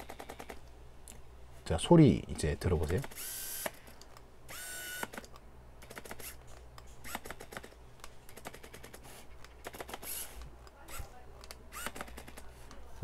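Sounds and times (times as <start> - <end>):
autofocus motor whirring: 3.0 - 6.4, 7.0 - 9.0, 9.6 - 12.8.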